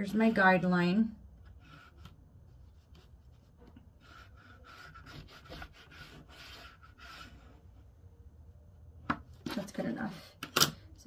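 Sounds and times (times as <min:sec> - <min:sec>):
chalk scratching on fabric: 0:01.6 - 0:07.5.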